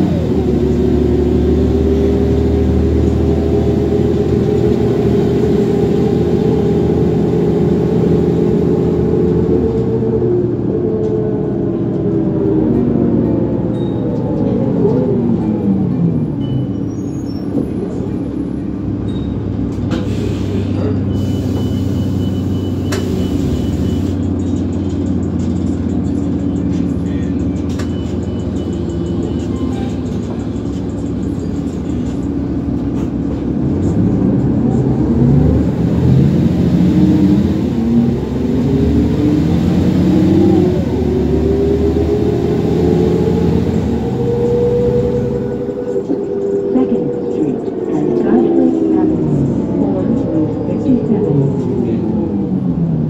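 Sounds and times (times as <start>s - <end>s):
bus diesel engine idling and revving: 0.0s - 53.0s.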